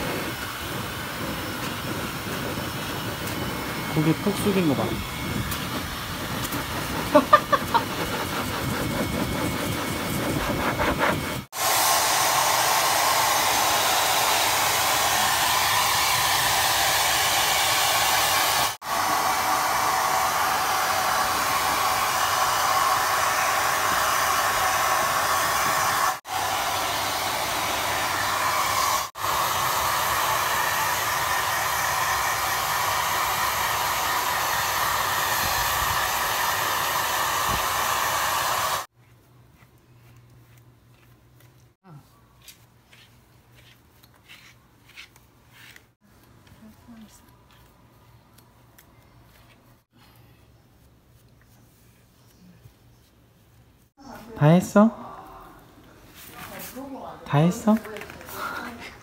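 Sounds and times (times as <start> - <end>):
hair dryer blowing: 0.0 - 38.9, 56.8 - 59.0.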